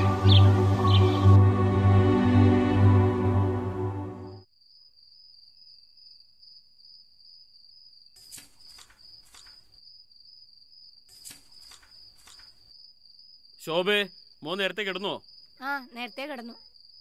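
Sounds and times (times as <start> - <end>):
crickets chirping: 4.2 - 17.0
paper pages turning: 8.2 - 9.7.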